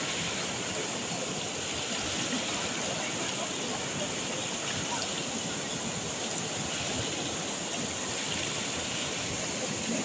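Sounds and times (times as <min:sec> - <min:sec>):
river rushing over boulders: 0:00.0 - 0:10.0.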